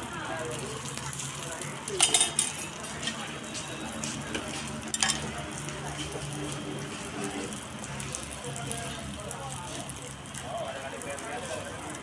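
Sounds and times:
food sizzling on griddle: 0:00.0 - 0:12.0
metal spatula clicking on griddle: 0:01.9 - 0:03.2, 0:04.3 - 0:06.3.

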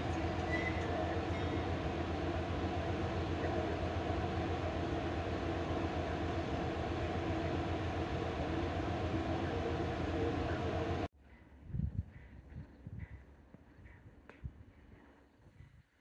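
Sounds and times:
idling train drone: 0:00.0 - 0:11.1.

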